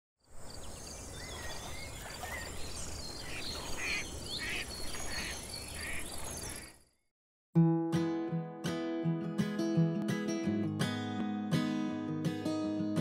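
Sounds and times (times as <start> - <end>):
birds calling and chirping: 0.3 - 6.9
raspy bird calls: 1.1 - 6.7.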